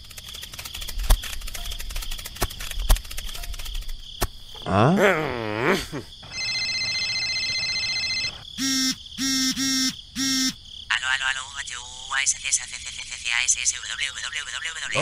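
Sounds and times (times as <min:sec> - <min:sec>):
phone ringtone trilling: 0:06.2 - 0:10.6.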